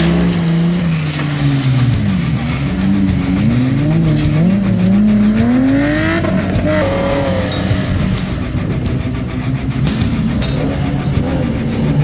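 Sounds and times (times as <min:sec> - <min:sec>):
buggy engines revving: 0:00.0 - 0:12.0.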